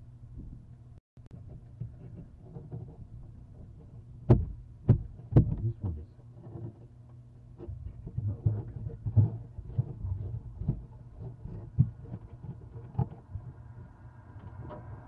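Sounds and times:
steady low hum: 0.0s - 15.0s
faint bumps: 1.4s - 15.0s
sharp knocks inside nest box: 4.3s - 5.7s.

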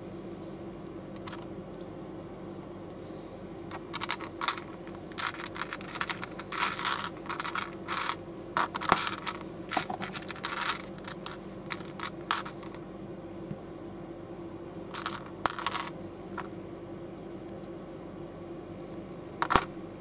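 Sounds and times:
plastic bricks clicking: 3.7s - 12.8s, 15.0s - 15.9s.

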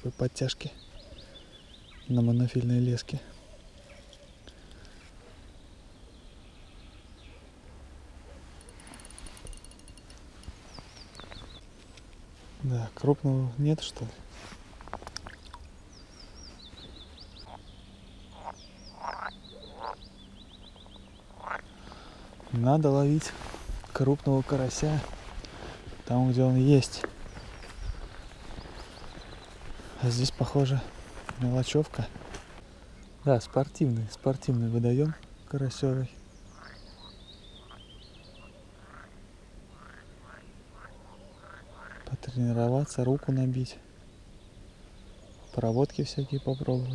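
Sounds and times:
frogs croaking: 8.6s - 11.4s, 17.2s - 22.3s, 32.8s - 35.4s, 36.2s - 43.3s.

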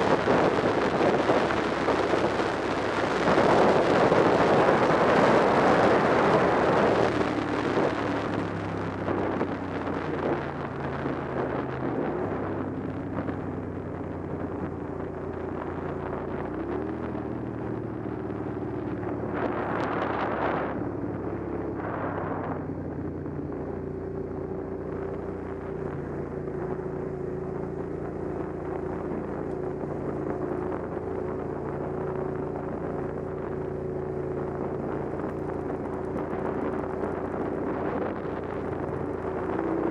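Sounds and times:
motorcycle engine running: 0.0s - 39.9s
wind rushing over microphone: 0.0s - 39.9s.

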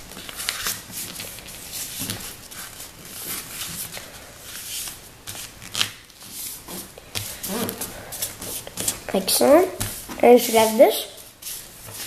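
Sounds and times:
paper crackling: 0.0s - 6.4s
paper rustling and sliding: 0.0s - 9.0s, 9.8s - 12.0s.

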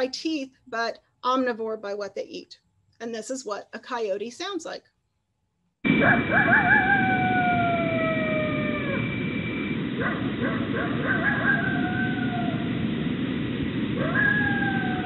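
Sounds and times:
coyote howls: 5.9s - 9.2s, 10.0s - 12.8s, 14.0s - 15.0s.

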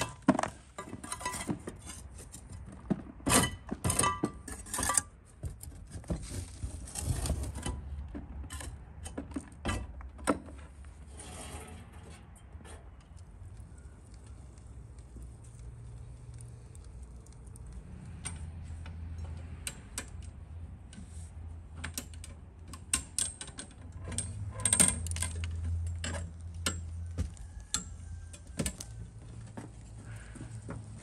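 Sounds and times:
metal chain clinking and rattling: 23.0s - 26.9s.

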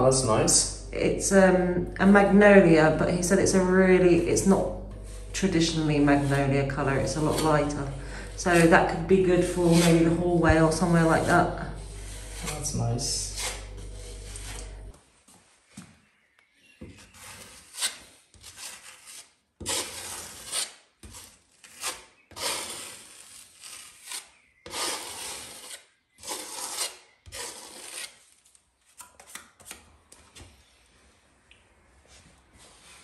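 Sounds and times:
putty knife scraping on wall: 4.9s - 14.9s, 17.0s - 28.2s.

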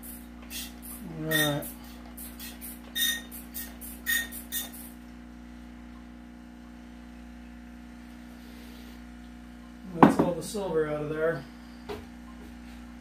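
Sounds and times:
spray bottle squirt: 0.0s - 5.0s
low electrical hum: 0.0s - 13.0s.

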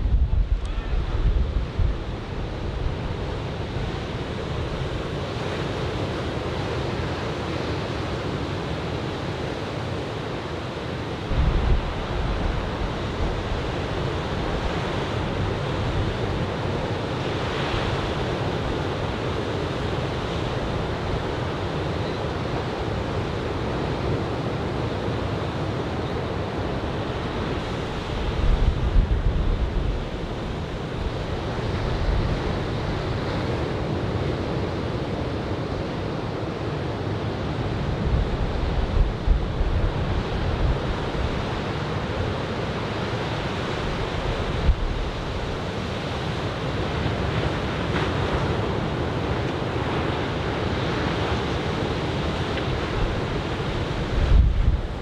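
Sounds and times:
wind buffeting microphone: 0.0s - 4.8s, 11.3s - 16.6s, 52.2s - 55.0s
ocean waves breaking: 26.6s - 55.0s.

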